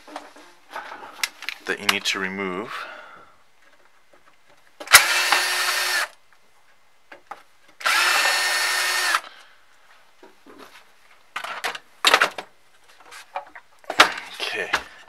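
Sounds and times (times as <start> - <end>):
cordless drill whining: 4.9 - 6.2, 7.8 - 9.3.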